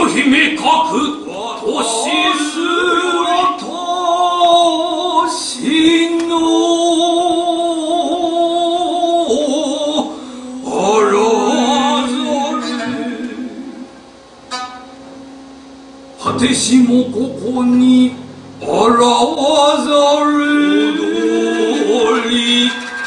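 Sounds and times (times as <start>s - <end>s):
person singing long held notes: 1.3s - 13.9s, 16.2s - 22.8s
sparse stage music: 10.8s - 23.0s
sharp struck accents: 14.5s - 21.1s.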